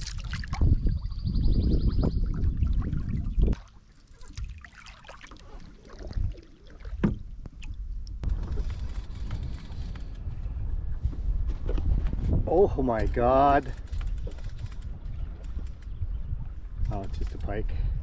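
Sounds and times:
paddle dripping and splashing: 0:00.0 - 0:01.2, 0:02.2 - 0:08.1.

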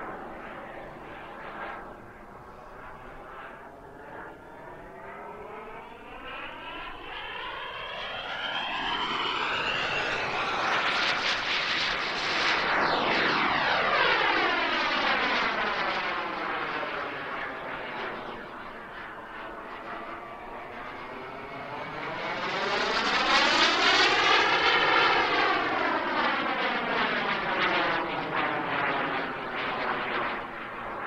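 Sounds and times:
model jet turbine whine: 0:00.0 - 0:31.0.

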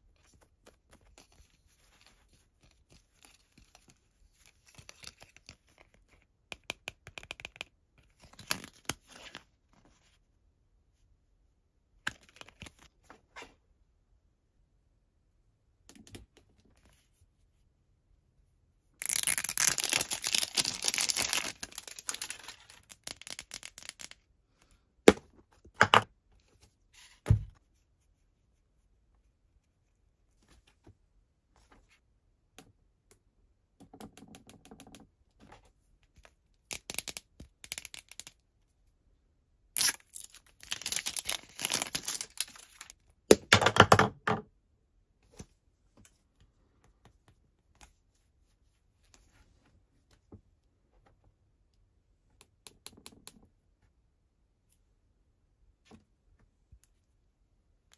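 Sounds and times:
plastic wrap crinkling and tearing: 0:19.0 - 0:24.0, 0:39.8 - 0:42.9.

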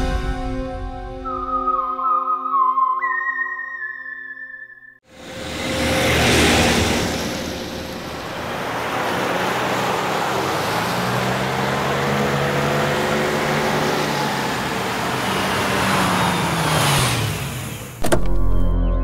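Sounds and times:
car engine driving fast: 0:05.1 - 0:18.2.

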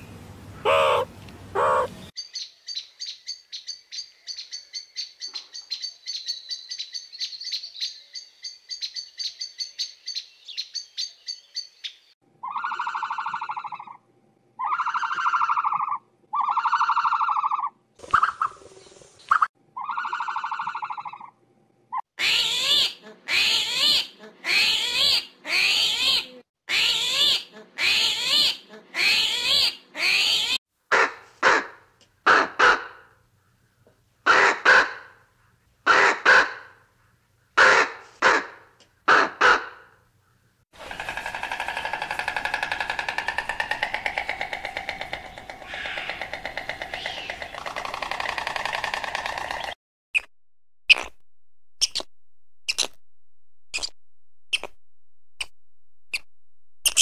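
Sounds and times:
crow cawing: 0:00.6 - 0:01.9, 0:41.8 - 0:47.4
harsh animal calls: 0:00.6 - 0:02.0, 0:40.8 - 0:49.8
rasping pulsing call: 0:00.6 - 0:02.0, 0:40.8 - 0:48.3.

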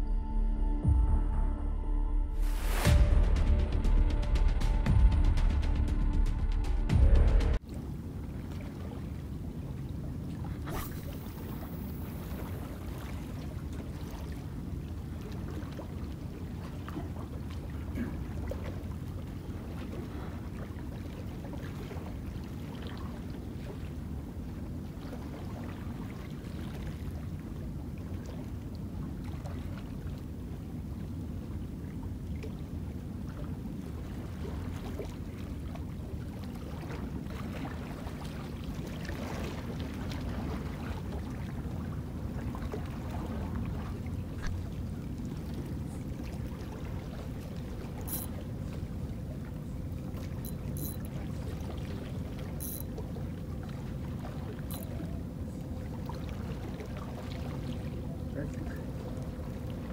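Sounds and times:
faint steady hum: 0:07.6 - 0:59.9
small splashes: 0:10.3 - 0:23.9.

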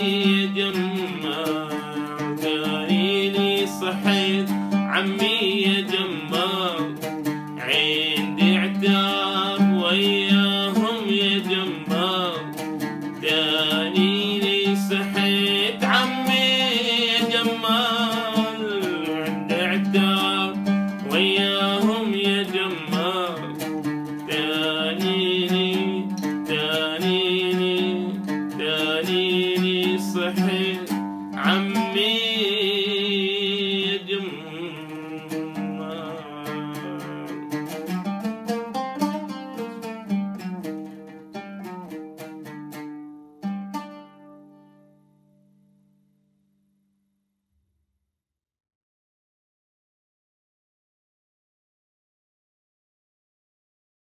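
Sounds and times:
man singing: 0:00.0 - 0:38.1
oud plucked strings: 0:00.0 - 0:45.8.

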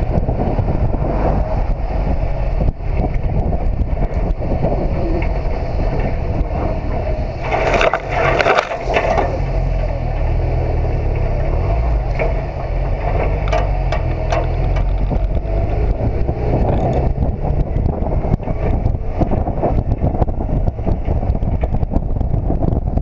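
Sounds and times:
road rumble: 0:00.0 - 0:23.0
wind: 0:00.0 - 0:23.0
tree branches brushing camera: 0:07.4 - 0:09.2.

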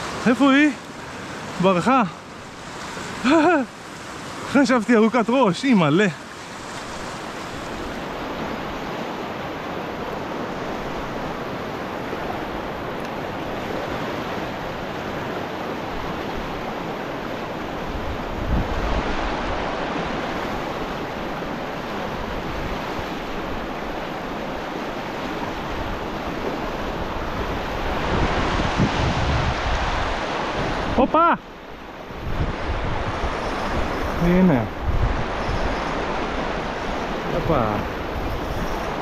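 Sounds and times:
river rushing over rocks: 0:00.0 - 0:39.0
wind buffeting microphone: 0:15.9 - 0:24.7, 0:25.3 - 0:31.0, 0:31.8 - 0:39.0.

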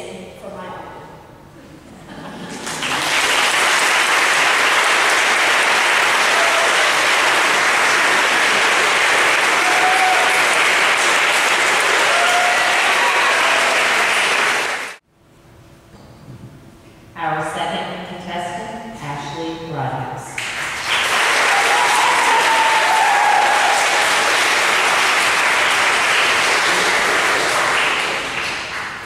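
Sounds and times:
audience applauding: 0:02.5 - 0:15.0, 0:20.4 - 0:29.0.

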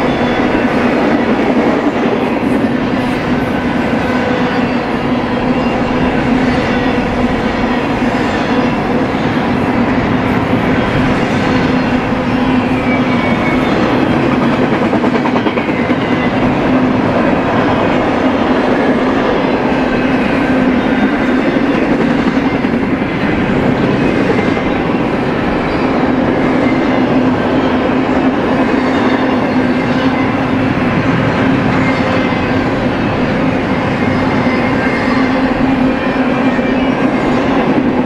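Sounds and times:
freight train wheels rumbling: 0:00.0 - 0:38.0.

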